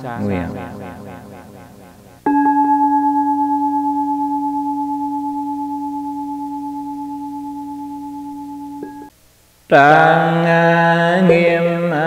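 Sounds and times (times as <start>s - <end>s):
bowl bell ringing: 2.3s - 9.1s.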